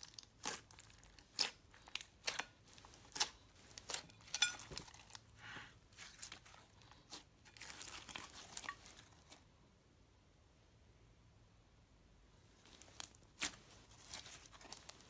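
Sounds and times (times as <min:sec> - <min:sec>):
slime squeezed crackling: 0:00.0 - 0:05.3, 0:05.9 - 0:09.3, 0:12.6 - 0:15.0.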